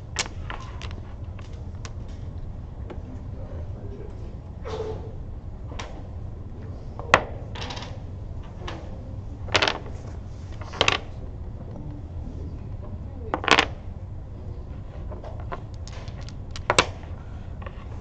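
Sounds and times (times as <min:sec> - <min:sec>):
dominoes clacking on wooden table: 0:00.1 - 0:02.1, 0:07.5 - 0:08.7, 0:09.4 - 0:11.1, 0:13.3 - 0:13.8, 0:15.0 - 0:17.9.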